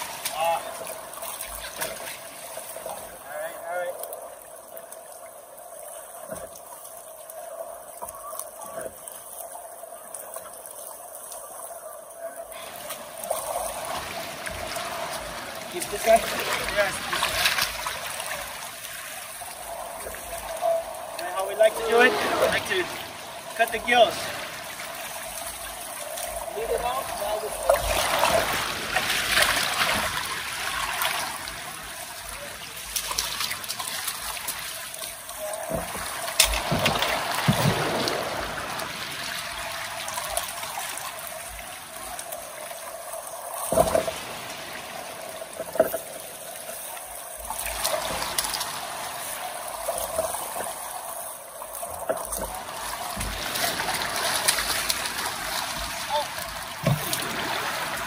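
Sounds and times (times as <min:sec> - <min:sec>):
river water splashing: 0:00.0 - 0:58.0.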